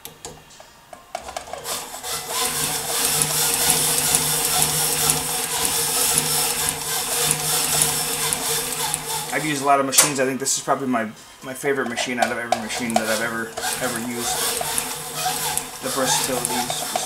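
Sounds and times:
sewing machine stitching: 1.2s - 9.7s, 11.9s - 17.0s.

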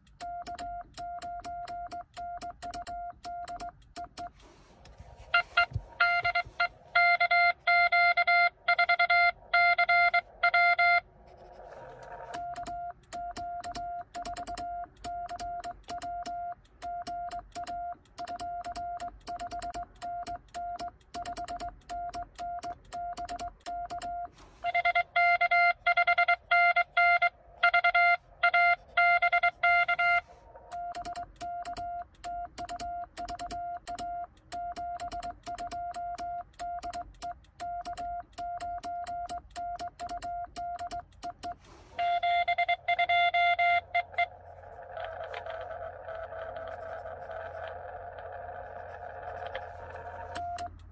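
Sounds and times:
morse key contacts clicking: 0.0s - 4.5s, 12.3s - 24.3s, 30.7s - 42.2s, 50.3s - 50.9s
morse sidetone: 0.1s - 4.4s, 5.3s - 11.0s, 12.3s - 50.9s
incoming morse code tones: 5.2s - 50.9s.

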